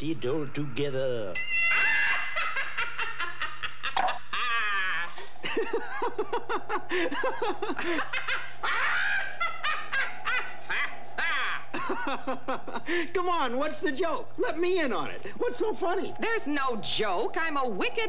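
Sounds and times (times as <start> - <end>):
cartoon voices laughing: 1.6 - 12.9.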